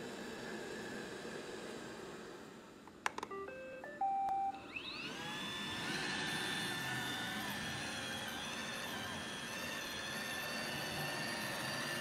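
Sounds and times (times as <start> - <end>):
start-up tune of beeps: 3.3 - 5.0
robot vacuum motor whirring: 4.6 - 12.0.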